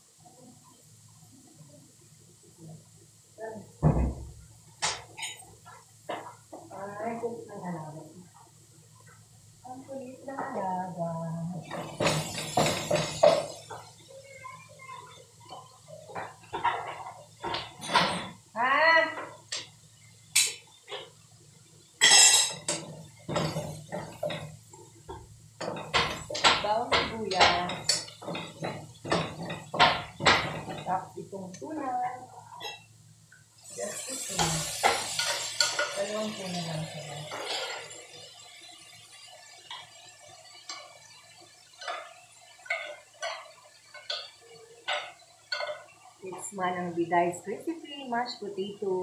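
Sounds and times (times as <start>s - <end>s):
utensils clinking against pot: 4.8s - 5.5s, 11.7s - 13.9s, 22.0s - 24.5s, 25.1s - 31.0s, 33.9s - 38.3s, 41.8s - 46.1s.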